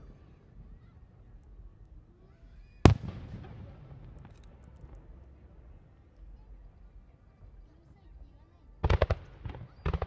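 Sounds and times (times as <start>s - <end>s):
firework bang: 2.8s - 4.3s.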